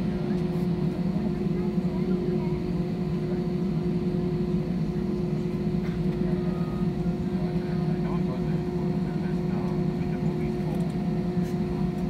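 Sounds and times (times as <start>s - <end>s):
jet cabin engine hum: 0.0s - 12.0s.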